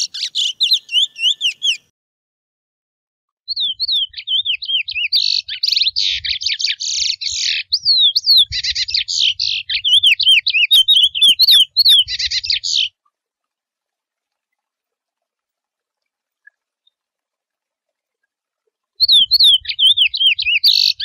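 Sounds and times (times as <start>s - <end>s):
finch singing whistled song: 0.0s - 1.9s, 3.5s - 12.9s, 19.0s - 21.0s.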